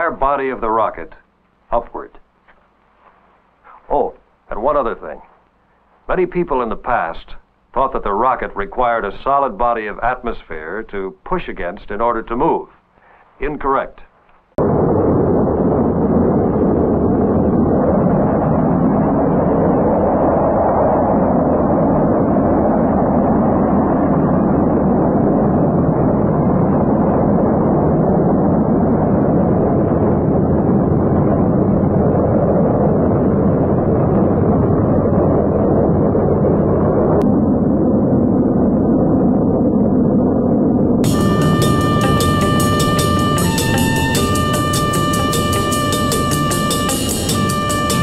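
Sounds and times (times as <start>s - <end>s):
rocket engines roaring: 14.6s - 48.0s.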